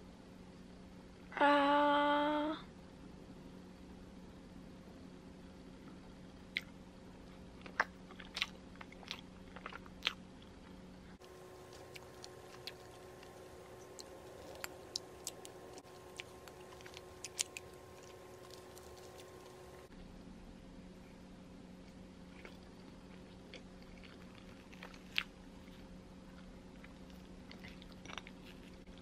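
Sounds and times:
soft chewing: 0:05.8 - 0:19.9, 0:21.8 - 0:29.0.

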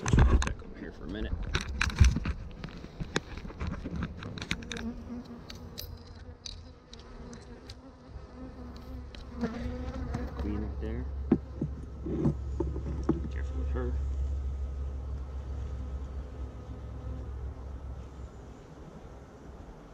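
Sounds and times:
honeybees buzzing: 0:02.4 - 0:19.9
bee flying past microphone: 0:04.6 - 0:10.6
wooden hive boxes knocking: 0:11.2 - 0:13.4.

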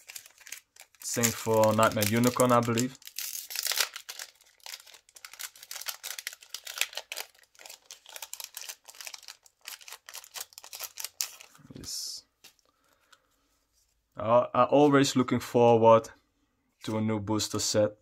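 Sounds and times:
foil wrapper crinkling and tearing: 0:00.0 - 0:11.6.

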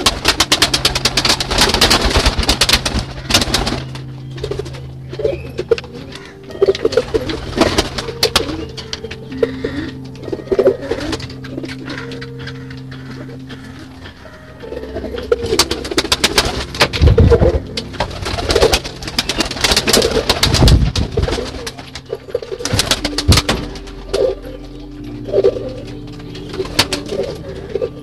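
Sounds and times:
pigeons cooing: 0:00.0 - 0:28.0.

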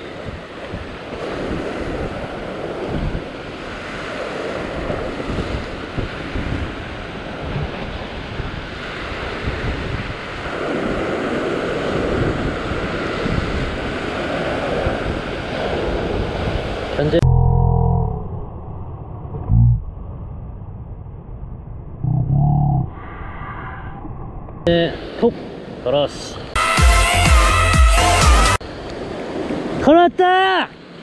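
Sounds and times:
ocean surf breaking over rocks: 0:00.0 - 0:17.2, 0:28.6 - 0:31.0
wind buffeting microphone: 0:00.0 - 0:24.7.

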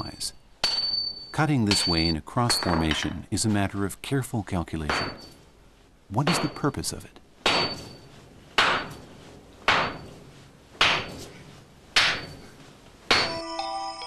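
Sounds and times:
hammer blows on chisel ringing: 0:00.0 - 0:03.1, 0:04.9 - 0:05.4
music: 0:13.3 - 0:14.0.

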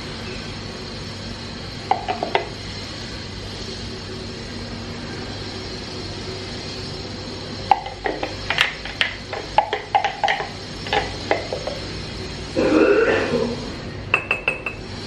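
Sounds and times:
steady low hum: 0:00.0 - 0:15.0
kitchenware clinking against glass: 0:14.2 - 0:14.8.

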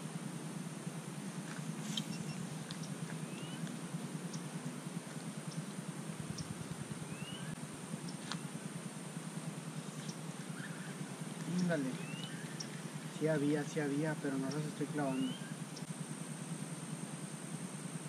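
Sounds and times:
steady low hum: 0:00.0 - 0:18.0
short rising bird chirps: 0:01.8 - 0:03.6, 0:06.3 - 0:07.6, 0:12.0 - 0:13.1.

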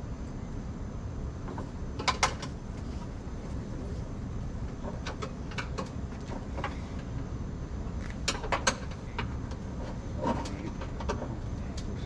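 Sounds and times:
tools clicking and knocking: 0:08.2 - 0:09.6.

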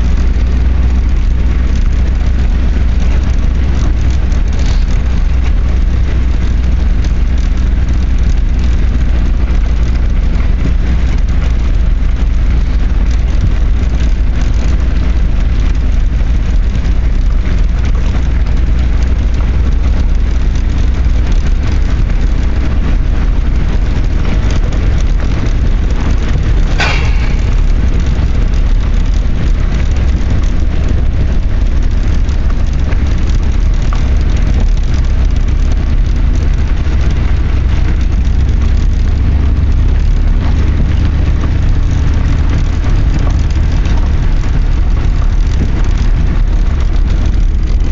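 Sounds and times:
car engine and road rumble: 0:00.0 - 0:47.9
brief sharp sound: 0:26.8 - 0:28.1.

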